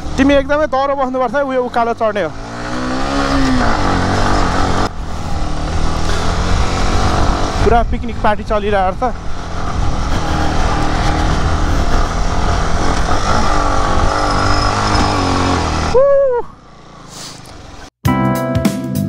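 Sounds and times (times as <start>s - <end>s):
motorcycle engine pulling hard: 0.0s - 17.9s
wind on microphone: 4.4s - 16.0s
brief high cry: 15.9s - 16.5s
music: 18.0s - 19.0s.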